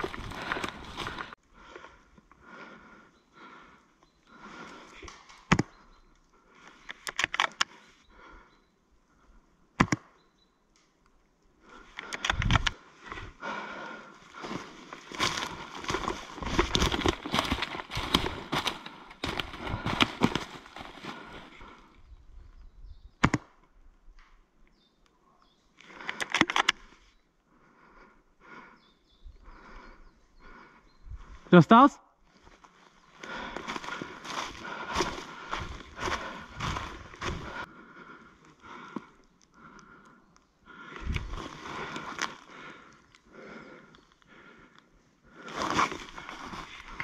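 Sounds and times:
sharp cracks and clicks: 6.8 - 7.8, 11.9 - 12.8, 25.8 - 26.8
breathing close to microphone: 11.7 - 22.2, 33.2 - 47.0
rustling: 14.4 - 21.6.

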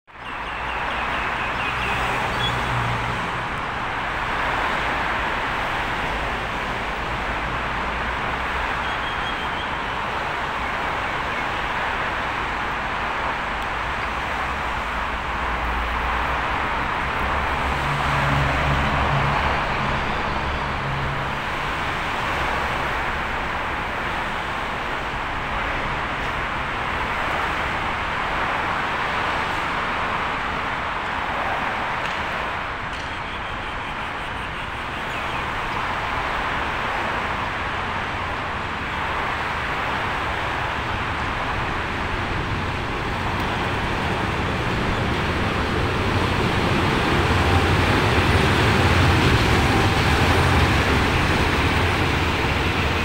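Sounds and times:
city background noise: 0.0 - 53.0
distant diesel locomotive hum: 38.9 - 53.0.

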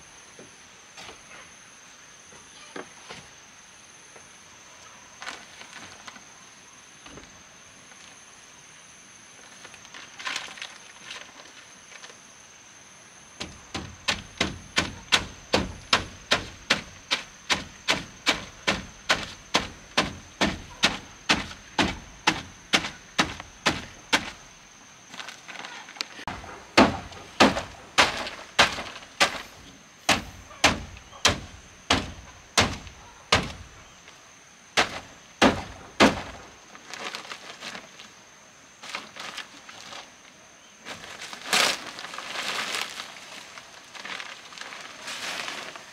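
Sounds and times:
hand tool striking wood: 13.4 - 24.4, 26.3 - 33.7, 34.8 - 36.4.

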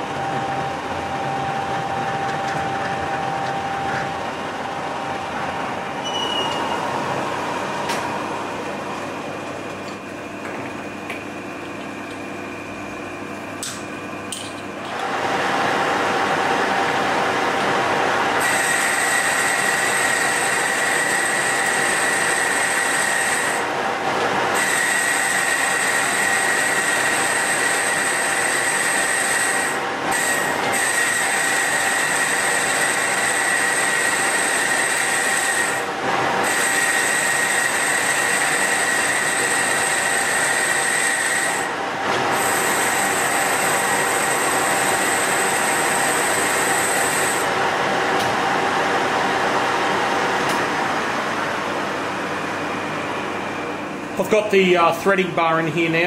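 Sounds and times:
lathe cutting squeal: 6.0 - 7.0, 18.4 - 23.7, 24.6 - 47.5
lathe machine noise: 14.8 - 52.8.

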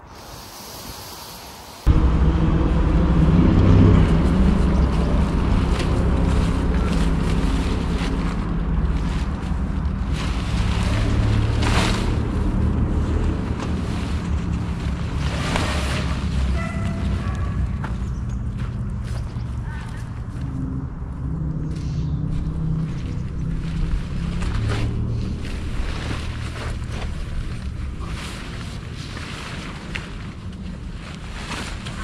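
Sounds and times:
wind rumbling on microphone: 0.0 - 32.0
tent fabric rustling: 4.2 - 17.6, 22.3 - 32.0.

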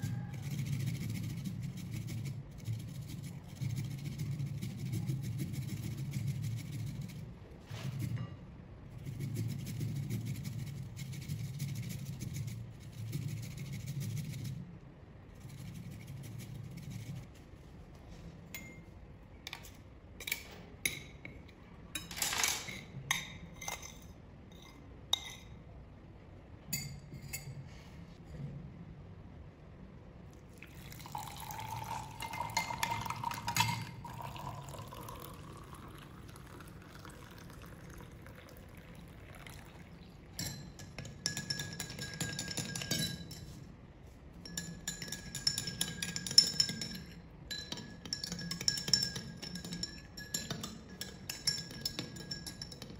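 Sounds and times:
liquid pouring into glass: 30.6 - 40.1
metal spoon clinking on glass: 31.2 - 35.0, 40.4 - 43.6, 44.4 - 52.9.

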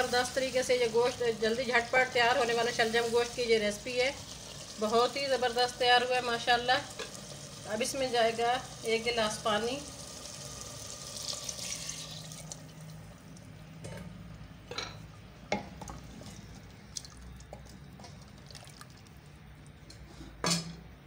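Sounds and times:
water pouring and splashing: 10.1 - 13.0, 16.9 - 19.3.

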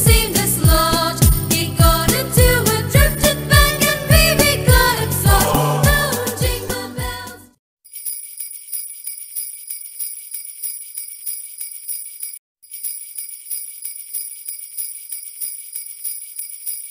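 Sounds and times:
sleigh bells shaken rhythmically: 0.0 - 16.9.

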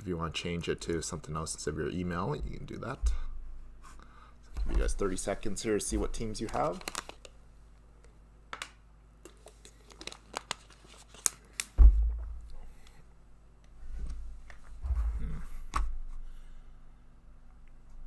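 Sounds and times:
packaging crinkling: 6.4 - 7.3, 9.3 - 11.8
dull thump: 11.8 - 12.5.

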